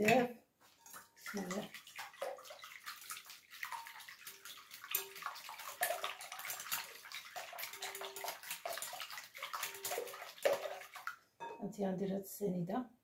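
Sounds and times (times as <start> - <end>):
whisk beating eggs in glass bowl: 1.3 - 11.1.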